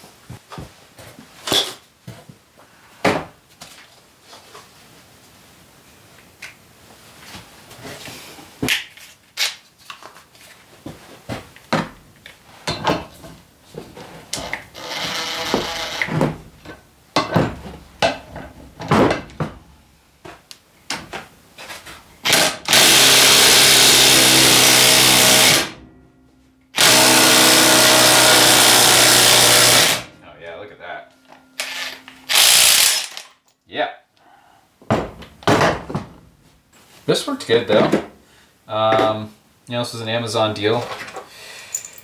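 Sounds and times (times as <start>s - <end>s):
tools clinking and knocking: 12.6s - 19.6s, 31.1s - 33.6s, 40.8s - 42.0s
impact driver running: 22.3s - 25.8s, 26.8s - 30.1s, 31.6s - 33.3s.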